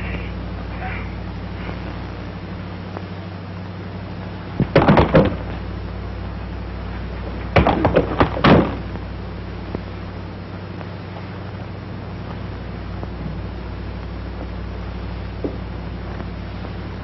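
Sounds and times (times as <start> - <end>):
steady low hum: 0.0 - 17.0
heavy thumps: 4.6 - 5.7, 7.0 - 9.0, 15.4 - 15.8.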